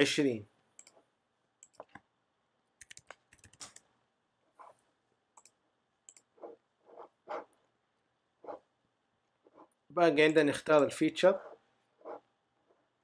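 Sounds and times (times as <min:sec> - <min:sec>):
keyboard keystrokes: 0:02.8 - 0:03.8
mouse clicks: 0:05.4 - 0:06.3.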